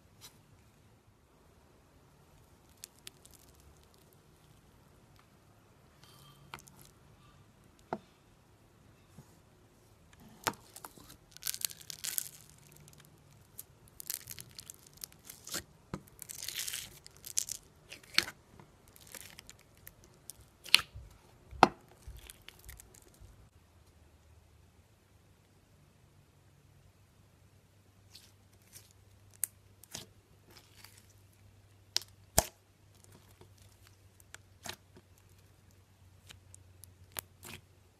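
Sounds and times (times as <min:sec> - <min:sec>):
slime crackling and popping: 0:02.4 - 0:04.7, 0:10.5 - 0:21.0, 0:21.7 - 0:23.2, 0:28.1 - 0:37.7.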